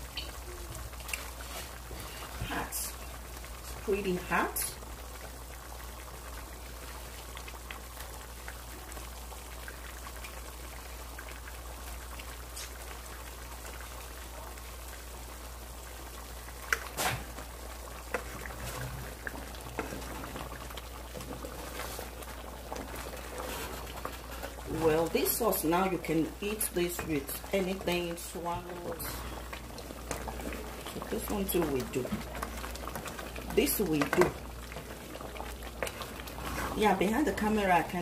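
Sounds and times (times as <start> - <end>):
sauce bubbling in pot: 0.0 - 38.0
wooden spoon stirring sauce: 18.1 - 37.9.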